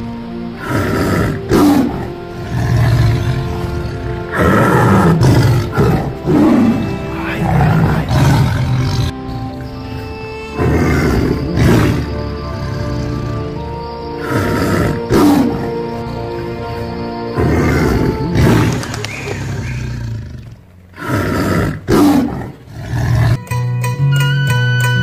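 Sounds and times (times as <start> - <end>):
tiger roaring: 0.0 - 23.4
background music: 0.0 - 25.0.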